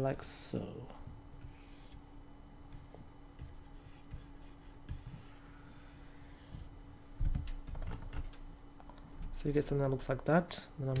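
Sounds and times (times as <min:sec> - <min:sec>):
low electrical hum: 0:00.0 - 0:11.0
hands scratching and knocking on desk: 0:02.7 - 0:05.8.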